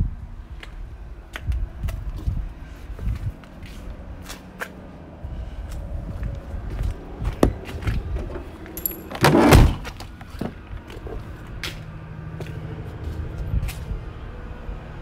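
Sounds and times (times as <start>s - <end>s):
truck door slamming: 7.4s - 10.0s.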